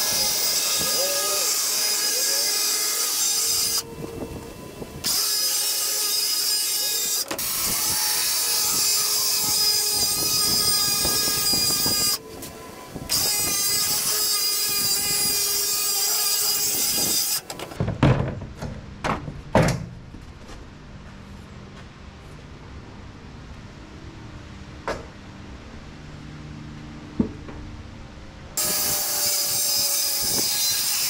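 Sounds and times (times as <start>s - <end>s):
circular saw cutting plywood: 0.0s - 4.0s, 5.0s - 17.5s, 28.6s - 31.0s.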